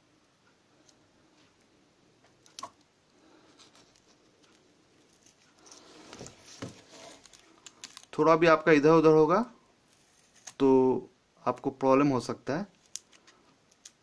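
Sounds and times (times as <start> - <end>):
tape and key rustling: 3.6 - 8.2.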